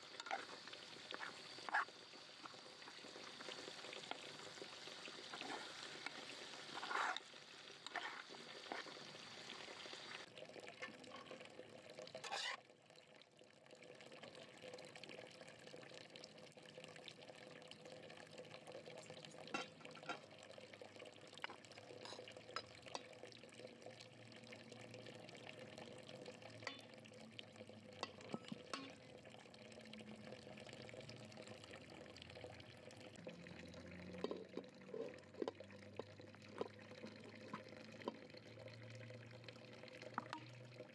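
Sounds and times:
chicken sizzling in pan: 0.0 - 11.2, 12.2 - 12.6, 26.4 - 26.9, 28.0 - 29.2
metal spoon clinking on pots: 19.5 - 20.3, 22.0 - 23.2, 26.6 - 26.9, 28.0 - 29.0, 34.2 - 36.7.

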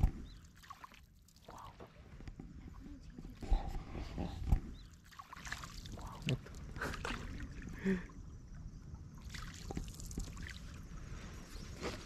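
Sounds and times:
water lapping around small boat: 0.0 - 12.0.

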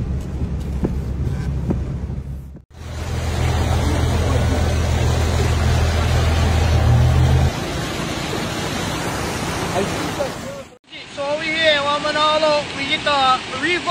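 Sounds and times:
low engine drone: 0.0 - 10.8
floodwater rushing: 2.7 - 13.9.

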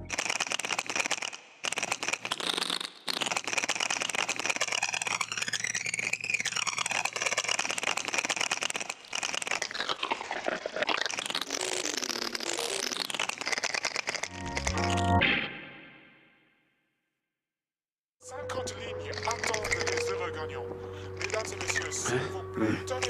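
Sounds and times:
synthesized crackling rattle: 0.0 - 15.4, 19.1 - 20.2, 21.2 - 22.0.

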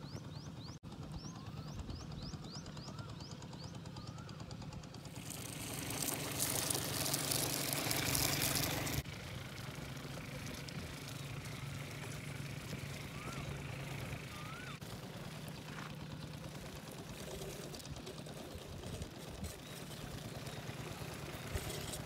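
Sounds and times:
toy truck motor humming: 5.0 - 22.0.

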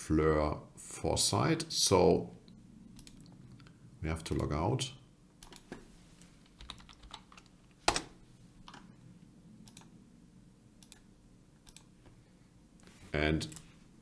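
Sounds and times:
computer keyboard and mouse clicks: 3.0 - 3.7, 5.4 - 5.8, 6.4 - 8.9, 9.6 - 9.9, 10.8 - 11.9.

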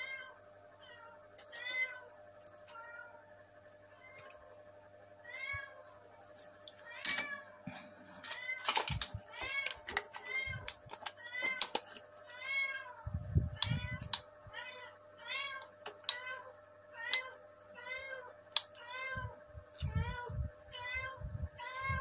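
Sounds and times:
tools and wire clicking: 8.2 - 12.0.

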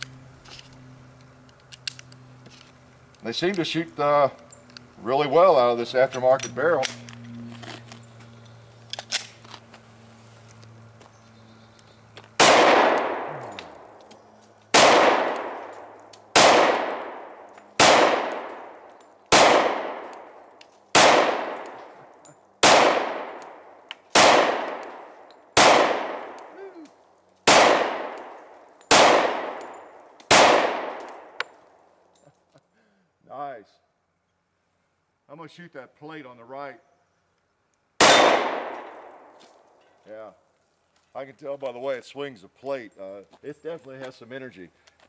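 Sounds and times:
pistol shots with echoing tail: 12.4 - 13.5, 14.7 - 22.0, 22.6 - 26.6, 27.4 - 31.4, 38.0 - 39.3.

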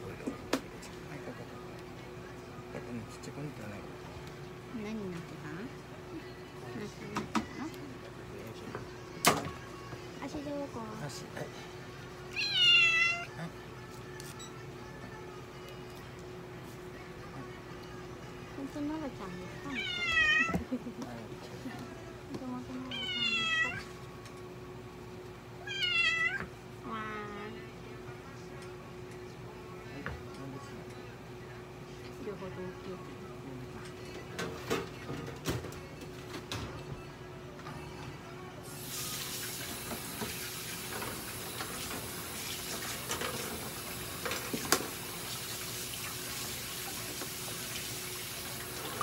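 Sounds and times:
cat meowing: 12.3 - 13.4, 19.7 - 20.6, 22.9 - 23.9, 25.6 - 26.5
running water hissing: 38.7 - 49.0.

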